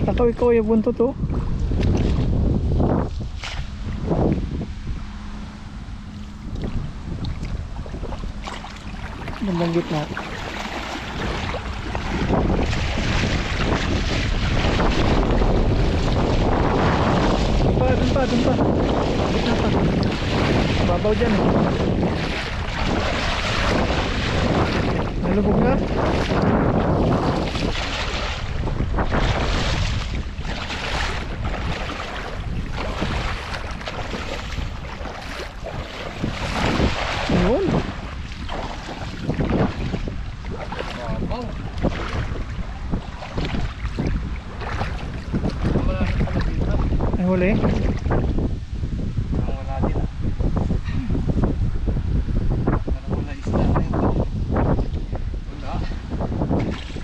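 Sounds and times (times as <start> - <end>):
wind buffeting microphone: 0.0 - 57.0
water splashing from wading legs: 1.4 - 2.4, 3.3 - 4.1, 6.2 - 48.4, 56.5 - 57.0.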